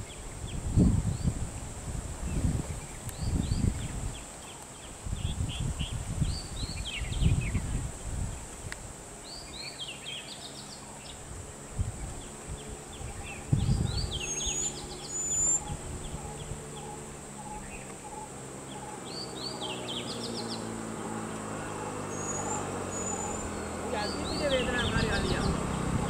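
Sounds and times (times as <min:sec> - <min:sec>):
birds chirping: 0:09.2 - 0:26.0
low rumbles: 0:11.0 - 0:26.0.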